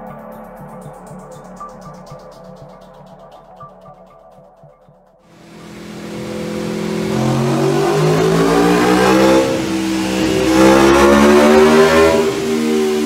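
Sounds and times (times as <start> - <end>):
motorcycle engine revving hard: 5.4 - 13.0.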